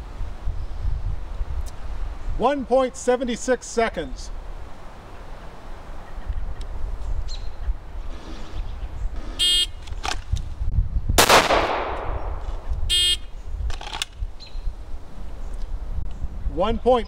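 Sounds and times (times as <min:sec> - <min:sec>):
pistol shot: 0:11.2 - 0:12.4.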